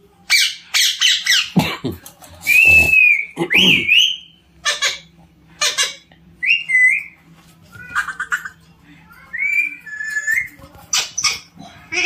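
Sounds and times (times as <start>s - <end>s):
parakeet harsh squawks: 2.6s - 6.1s.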